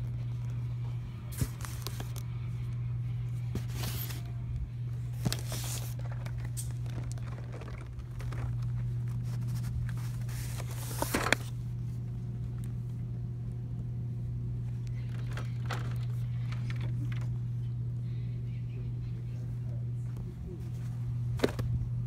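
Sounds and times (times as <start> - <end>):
steady low hum: 0.0 - 22.0
handling rustle: 1.3 - 2.3, 3.4 - 4.4, 5.1 - 11.6.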